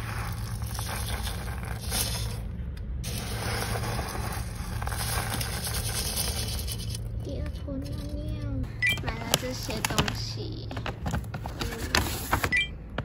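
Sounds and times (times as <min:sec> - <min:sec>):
scoop scraping through cat litter: 0:00.0 - 0:07.0.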